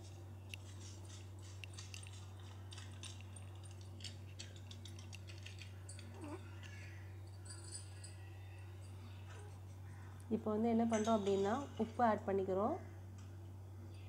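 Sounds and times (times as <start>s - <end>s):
handling clicks and rustles: 0.0s - 8.1s
steady low hum: 0.0s - 14.0s.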